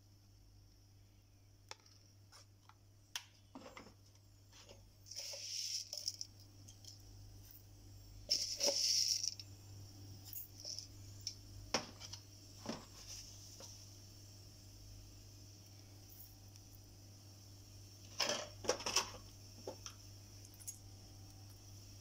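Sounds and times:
seeds pattering into metal jar: 0:05.1 - 0:07.6, 0:08.3 - 0:09.5, 0:10.2 - 0:11.4.

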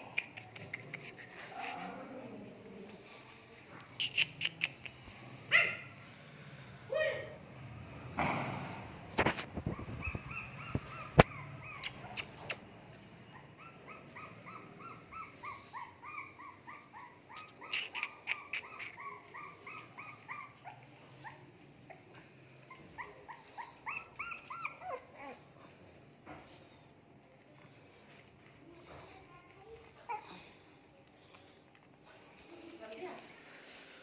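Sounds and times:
puppies whimpering: 0:09.6 - 0:12.5, 0:13.3 - 0:25.8.

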